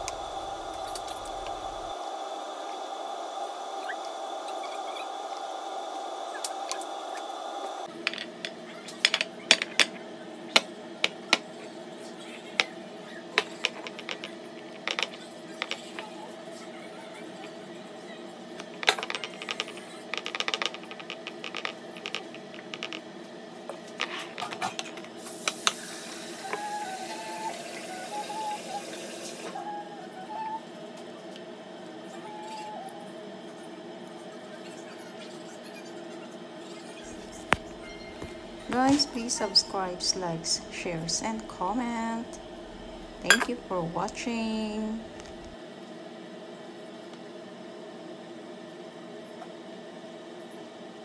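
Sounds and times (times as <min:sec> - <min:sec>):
steady low hum: 0:00.0 - 0:08.6, 0:36.4 - 0:45.8
kitchen fan humming: 0:00.0 - 0:51.0.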